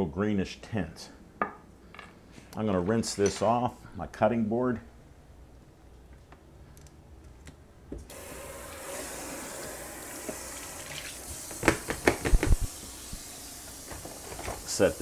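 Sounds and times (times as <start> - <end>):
tap water running and splashing: 8.1 - 15.0.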